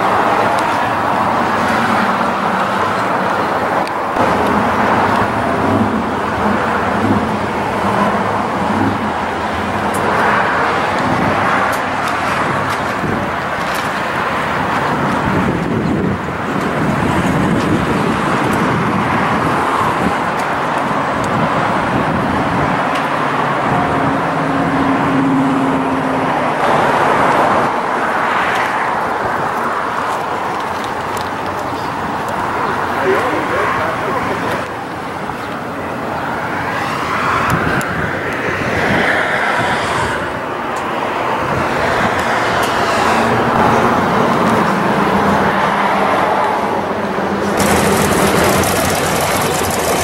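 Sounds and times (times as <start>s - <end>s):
vehicle engines running: 0.0s - 26.0s, 28.5s - 38.4s, 46.5s - 50.0s
traffic noise: 0.0s - 50.0s.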